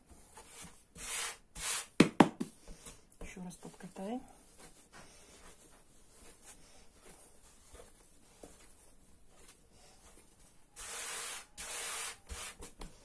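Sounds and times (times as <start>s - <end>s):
hands rubbing dough on board: 3.6s - 11.1s.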